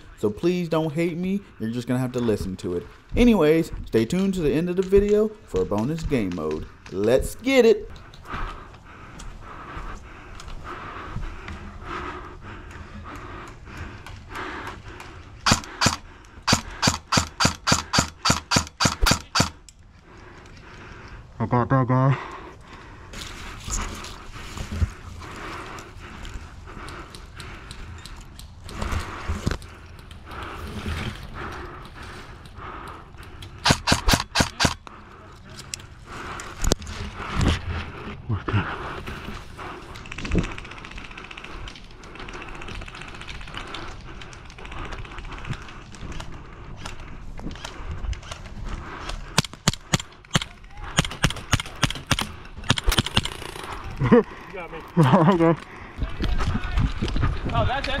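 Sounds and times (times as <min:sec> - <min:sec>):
heavy breathing through mask: 0:07.9 - 0:21.4, 0:22.1 - 0:56.2
airsoft rifle shots: 0:15.4 - 0:19.6, 0:33.6 - 0:34.8.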